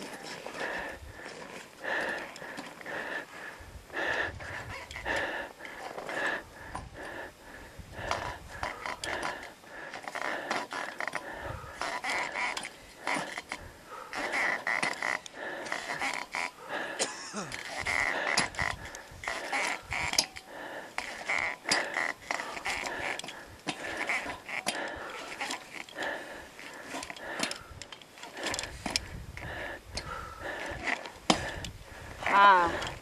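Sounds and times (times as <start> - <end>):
crampons clanking on metal ladder: 17.6 - 26.1.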